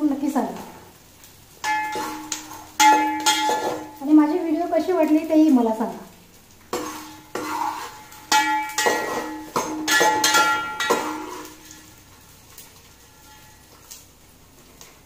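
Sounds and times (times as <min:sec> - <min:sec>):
metal spoon knocking on pot: 0:01.6 - 0:04.0, 0:08.3 - 0:11.6.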